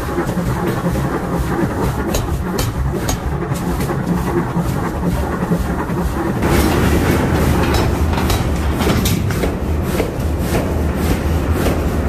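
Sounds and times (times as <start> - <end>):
forging hammer rumbling clatter: 0.0 - 12.0
metallic clanks: 6.4 - 9.6.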